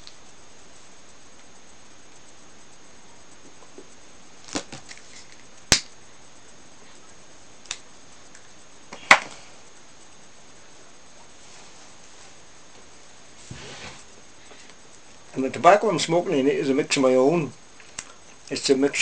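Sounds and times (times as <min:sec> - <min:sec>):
faint steady hiss: 0:00.0 - 0:19.0.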